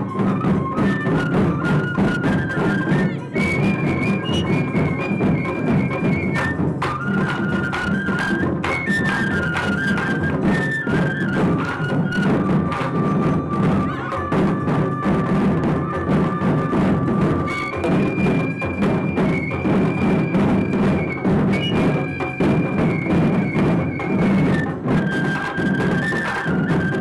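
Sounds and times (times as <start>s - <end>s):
high flute long notes: 0.0s - 27.0s
taiko drums in fast rhythm: 0.0s - 27.0s.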